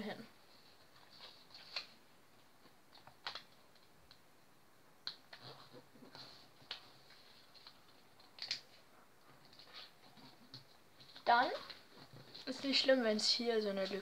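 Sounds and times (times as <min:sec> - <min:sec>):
paper rustling and crinkling: 0:00.5 - 0:02.0, 0:05.3 - 0:14.0.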